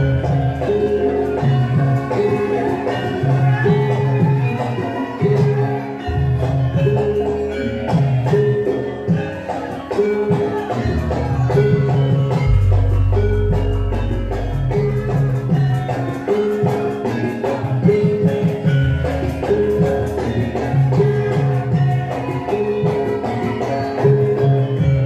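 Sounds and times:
mallet percussion melody: 0.0s - 25.0s
steady drum beat: 10.2s - 22.5s.

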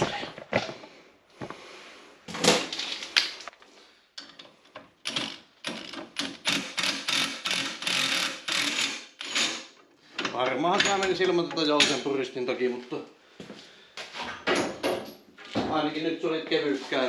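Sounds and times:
impact wrench hammering: 5.1s - 9.6s.

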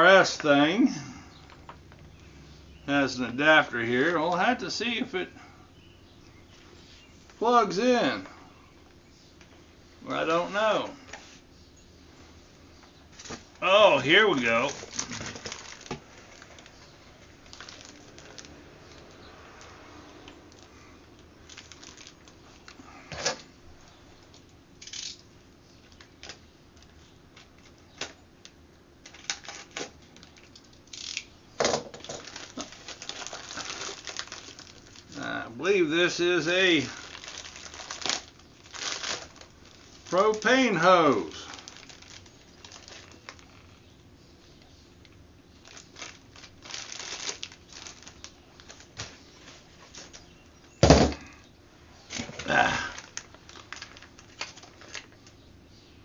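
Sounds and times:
plastic bag crinkling: 13.1s - 19.7s, 21.4s - 23.4s, 29.0s - 43.8s, 45.0s - 50.3s, 52.4s - 55.4s
packaging clicks and rustles: 13.2s - 28.2s, 29.0s - 35.3s, 36.8s - 43.8s, 45.0s - 50.3s, 52.2s - 55.4s.

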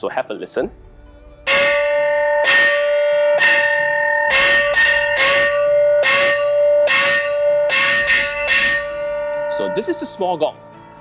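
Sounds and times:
hand gong struck with wooden beater: 1.4s - 10.2s.

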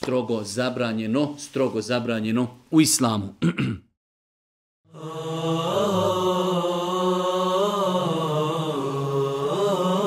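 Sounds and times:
person chanting: 4.9s - 10.0s.

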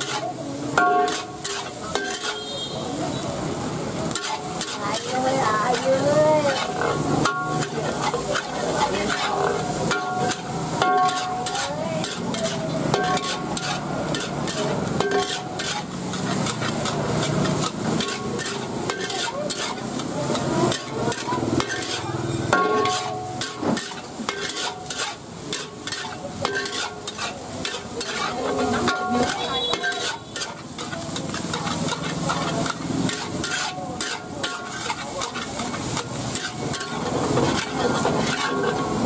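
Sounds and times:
fried rice sizzling in a wok: 0.0s - 39.0s
metal spatula scraping a pan: 0.0s - 39.0s
wok ringing: 0.0s - 39.0s.

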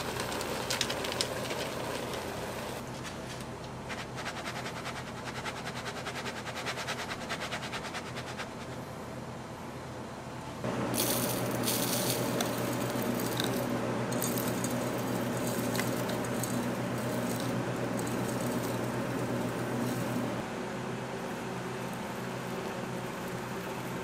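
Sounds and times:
machine motor humming: 10.6s - 24.0s.

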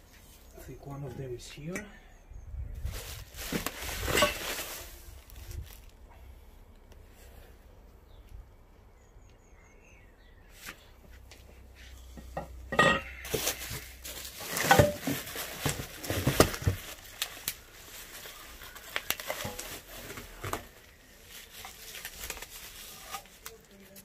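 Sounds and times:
bubble wrap crinkling: 2.8s - 6.1s, 13.1s - 24.0s.

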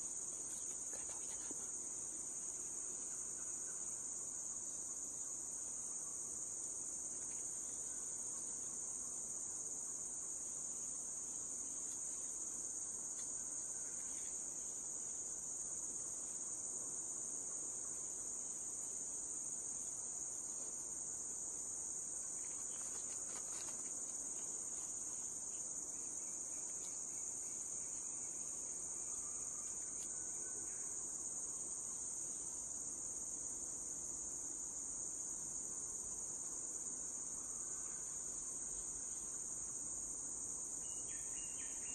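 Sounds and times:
shrill insect chorus: 0.0s - 41.9s
faint rustle: 22.3s - 25.8s.

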